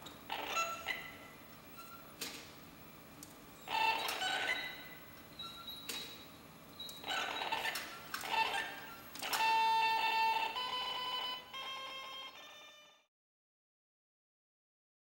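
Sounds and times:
sharp electronic clicks: 3.2 - 12.7.

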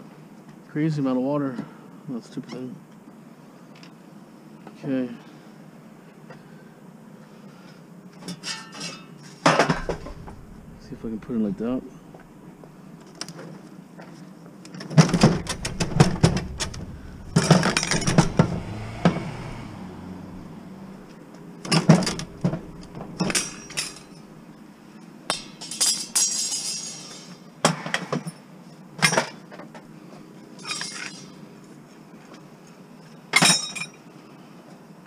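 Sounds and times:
metal clinking and rattling: 9.8 - 12.4, 15.1 - 19.5, 20.2 - 24.4
knocks: 15.1 - 21.0.

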